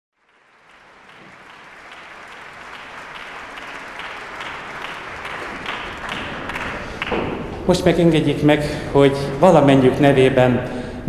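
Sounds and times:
audience applauding: 0.2s - 7.9s.

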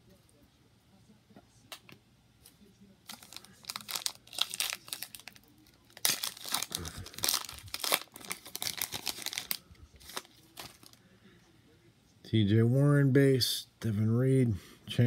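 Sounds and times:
foil wrapper crinkling: 3.1s - 11.0s.

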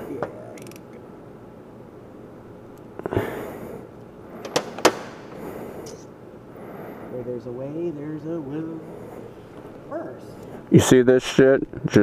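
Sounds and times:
sharp metallic clicks: 0.5s - 1.0s.

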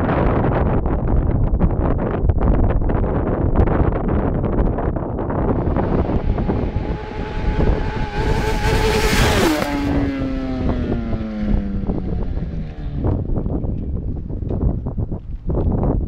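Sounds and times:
wind rumble on microphone: 0.0s - 16.0s
motorcycle passing at high revs: 5.4s - 13.6s.

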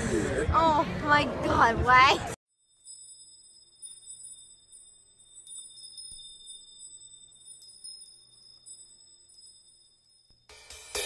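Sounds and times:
high-pitched chime tones: 2.6s - 10.5s.

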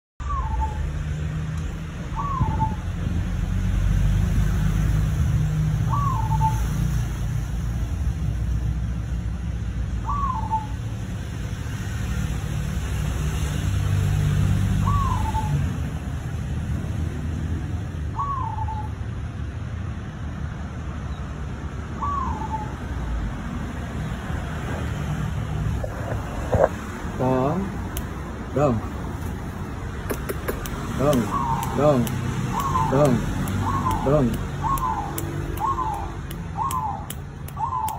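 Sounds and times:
dove cooing: 30.1s - 37.9s.

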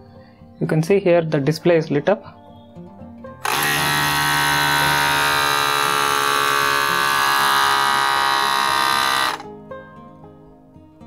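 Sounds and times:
electric air pump buzzing whine: 3.4s - 9.5s.

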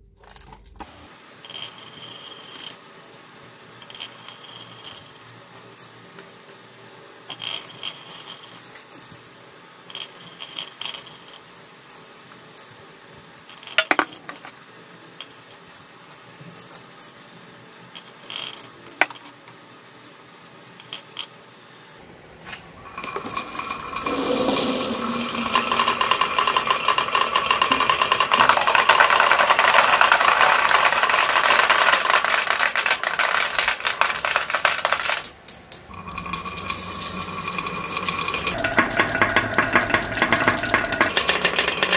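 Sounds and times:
marbles clattering on wooden track: 1.4s - 2.8s, 3.8s - 5.7s, 7.3s - 9.2s, 9.9s - 12.0s, 13.5s - 14.6s, 18.0s - 19.4s, 22.9s - 41.9s
marbles clicking into place: 23.0s - 41.9s.

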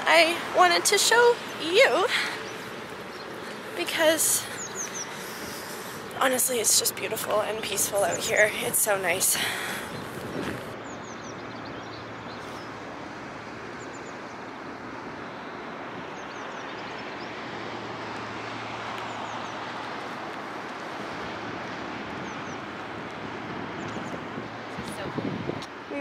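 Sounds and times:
outdoor background rush: 0.0s - 26.0s
small birds chirping: 1.3s - 12.8s.

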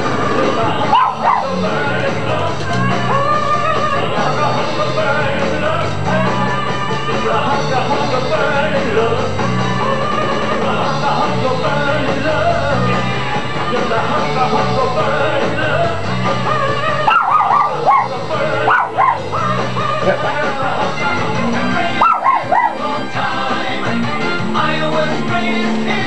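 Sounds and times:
rock song with singing and guitar: 0.0s - 26.0s
small dog yipping: 0.9s - 1.5s, 17.1s - 19.3s, 22.0s - 22.8s.

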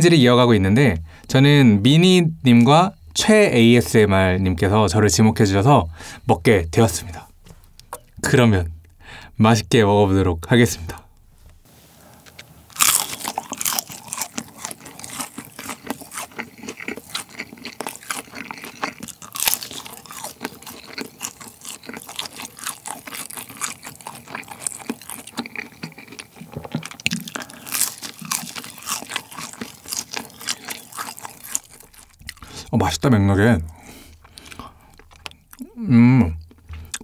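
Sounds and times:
crunchy biting and chewing: 12.1s - 33.0s, 33.6s - 37.0s.

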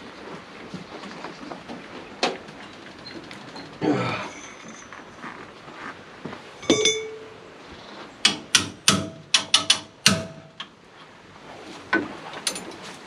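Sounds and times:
metal clanking on metal: 3.6s - 5.4s, 6.6s - 7.5s, 8.3s - 10.7s, 12.4s - 12.8s.

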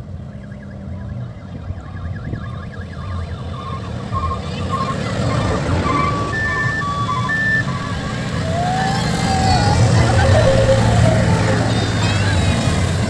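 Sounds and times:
mini-bus engines rumbling: 0.0s - 13.0s
warbling electronic siren: 0.0s - 13.0s
beeping tune from loudspeakers: 3.0s - 13.0s.

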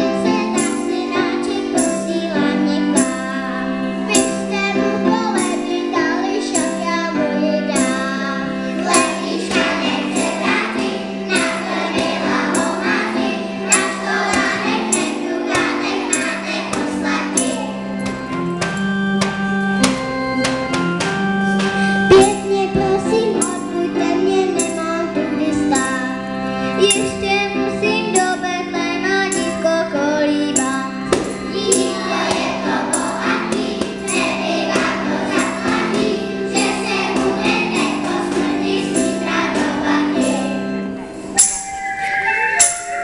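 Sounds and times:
children's choir singing: 0.0s - 18.8s, 21.0s - 43.0s
held accompaniment note: 21.5s - 23.8s.

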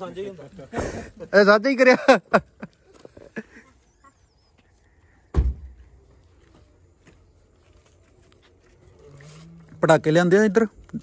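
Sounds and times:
heavy dull thump: 5.3s - 5.8s.

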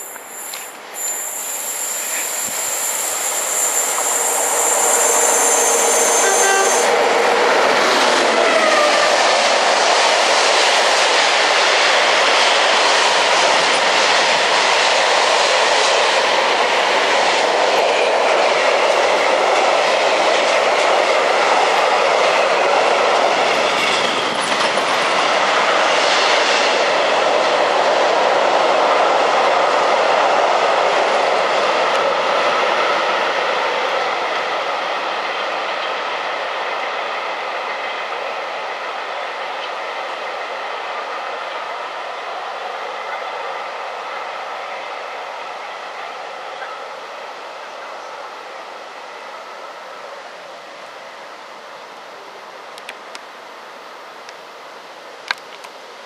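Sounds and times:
freight train wheels on rail: 0.0s - 56.0s.

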